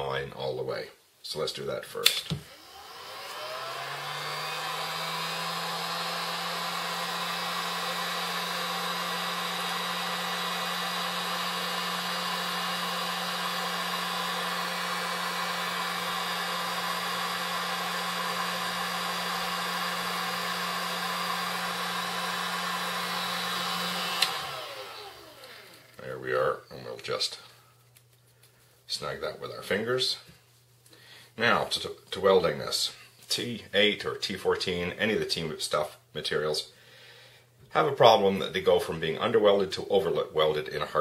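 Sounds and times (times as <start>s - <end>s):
heat gun fan humming: 2.0s - 28.6s.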